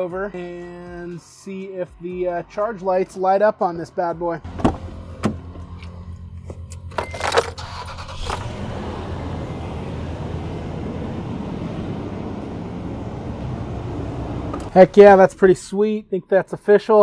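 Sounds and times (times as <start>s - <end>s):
engine idling: 4.5s - 15.2s.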